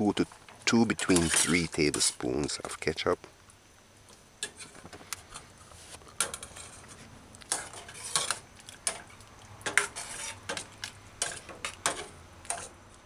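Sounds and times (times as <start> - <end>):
metal spoon scraping pot: 1.0 - 2.1, 6.2 - 12.8.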